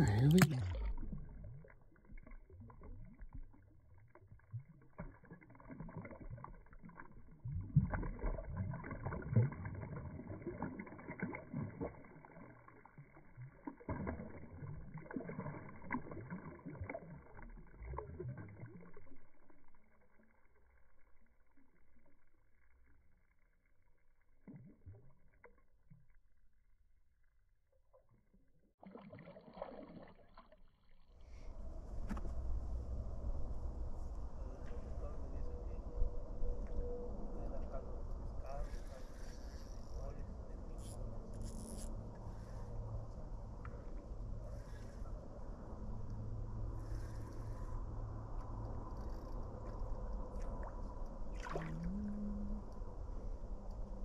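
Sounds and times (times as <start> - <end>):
water splashing from thrashing fish: 0.0 - 18.8, 28.8 - 30.4, 51.3 - 52.0.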